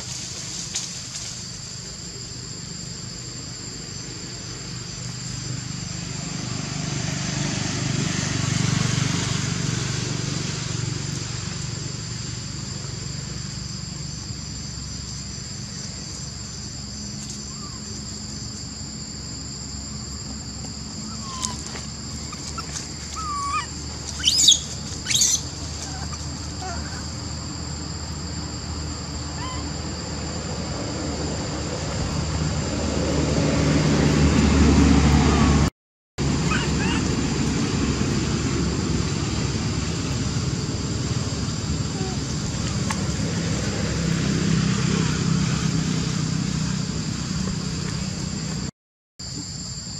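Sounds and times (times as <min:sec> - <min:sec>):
high-pitched insect drone: 0:00.0 - 0:33.7
sharp loud high calls: 0:21.0 - 0:27.1, 0:36.4 - 0:37.2
short chirping calls: 0:21.1 - 0:27.0.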